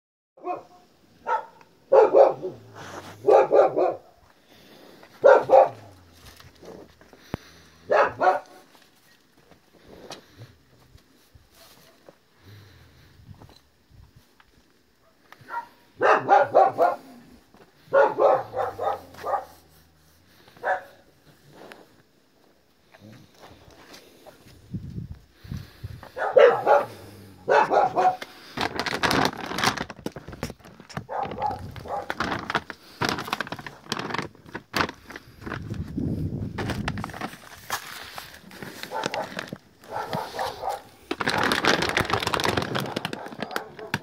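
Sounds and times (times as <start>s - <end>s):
dog barking: 0.4s - 4.2s, 5.2s - 6.0s, 7.8s - 8.7s, 15.0s - 17.3s, 17.9s - 19.6s, 20.6s - 21.1s, 26.2s - 28.3s, 31.1s - 32.3s, 38.9s - 41.6s, 42.8s - 44.0s.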